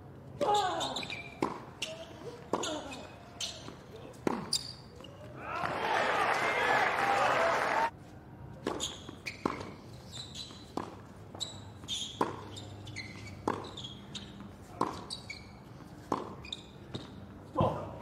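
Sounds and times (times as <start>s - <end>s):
shoe squeaks on court: 0.5s - 5.2s, 8.6s - 17.4s
racket striking tennis ball: 1.1s - 4.6s, 12.0s - 12.6s, 13.4s - 15.2s, 16.0s - 16.4s.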